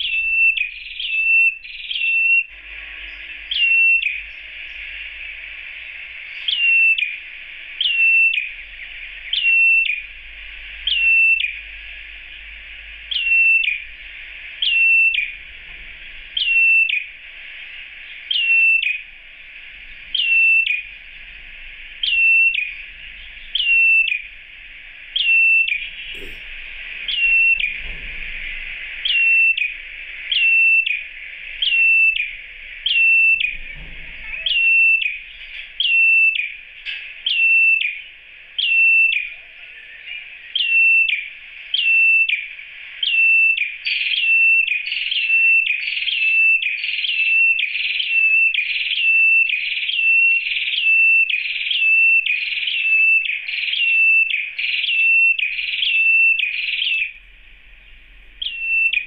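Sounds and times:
bird calling short high whistle: 34.4s - 35.2s, 58.4s - 59.0s.

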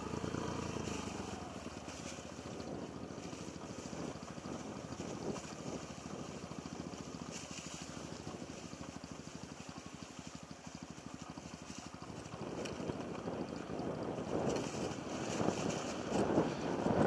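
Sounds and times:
motorcycle engine running: 0.0s - 17.0s.

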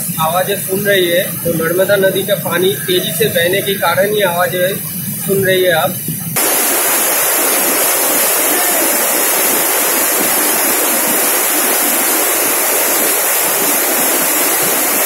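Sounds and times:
waterfall rushing over rock: 6.4s - 15.0s.

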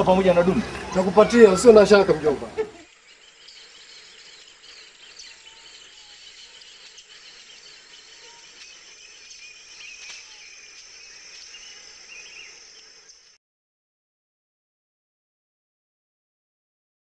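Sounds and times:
bird chirps: 0.0s - 13.4s
insects buzzing: 0.0s - 13.4s.

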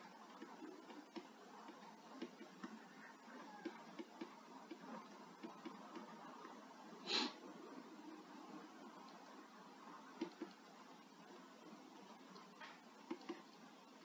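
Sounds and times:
stylus tapping on tablet: 3.5s - 6.1s, 10.1s - 10.7s.

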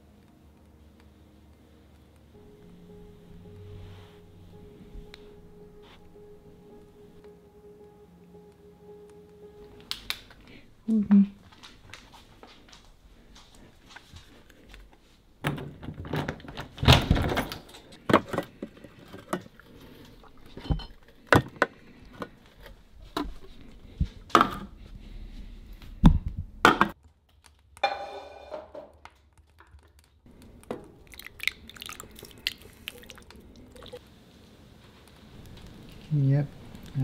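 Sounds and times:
cooking pot and utensils clattering: 17.2s - 21.8s, 27.8s - 29.0s.

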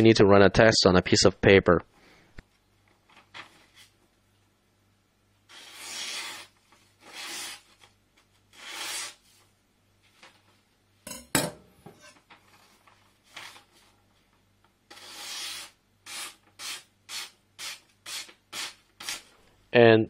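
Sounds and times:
knife slicing through paper: 5.5s - 7.8s.

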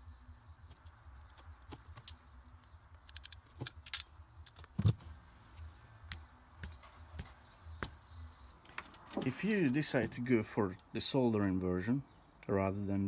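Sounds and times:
light handling clicks: 2.9s - 4.8s.

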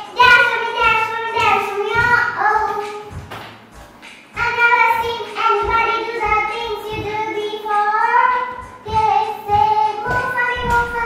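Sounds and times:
high voice singing: 4.4s - 11.0s.

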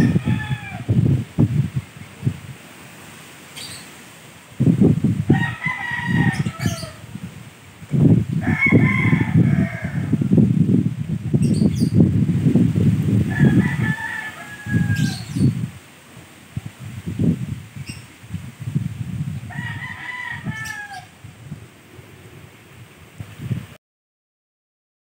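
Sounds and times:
rooster crowing: 0.0s - 1.0s, 5.2s - 7.1s, 8.4s - 10.4s, 13.2s - 15.7s, 19.4s - 21.2s
strong wind buffeting microphone: 0.0s - 2.7s, 4.5s - 23.8s.

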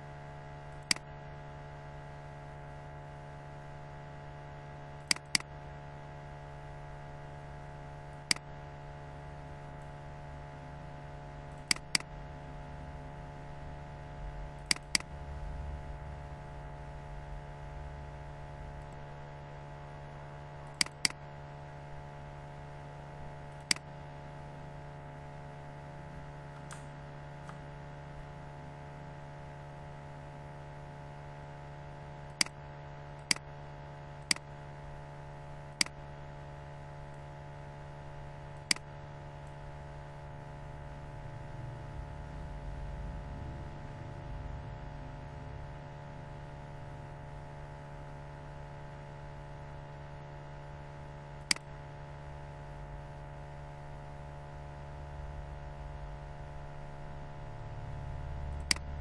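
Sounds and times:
electrical hum: 0.0s - 59.0s
computer mouse clicking: 0.7s - 1.1s, 5.0s - 5.5s, 8.1s - 8.5s, 11.5s - 12.2s, 14.6s - 15.2s, 20.6s - 21.2s, 23.5s - 23.9s, 32.3s - 32.6s, 34.2s - 34.5s, 35.8s - 36.0s, 38.6s - 38.9s, 51.4s - 51.7s, 58.6s - 58.9s.

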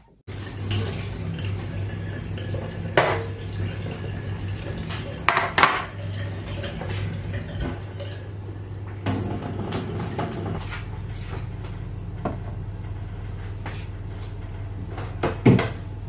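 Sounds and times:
tray knocking on counter: 5.3s - 5.9s.

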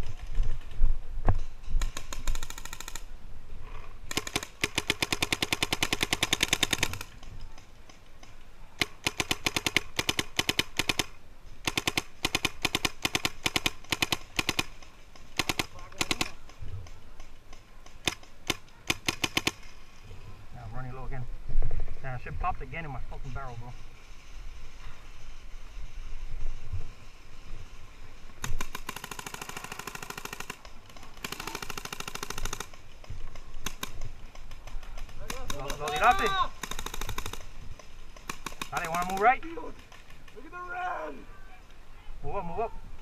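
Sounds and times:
paintball markers firing rapidly: 1.8s - 3.1s, 4.1s - 19.7s, 28.4s - 40.4s.

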